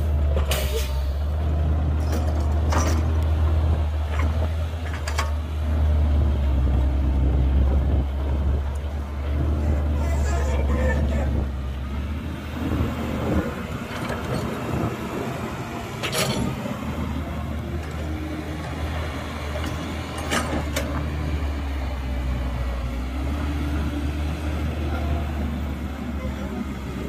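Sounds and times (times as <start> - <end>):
diesel machinery engine drone: 0.0 - 27.0.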